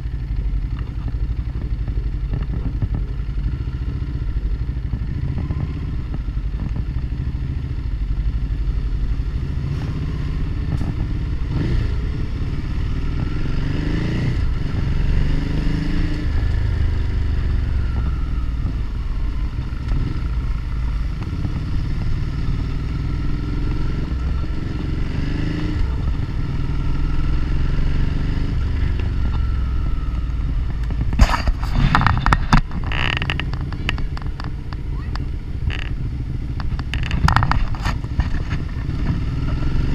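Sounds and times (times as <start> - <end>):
motorcycle engine revving: 0.0 - 39.9
knocks and rattles: 30.6 - 35.9, 36.6 - 39.2.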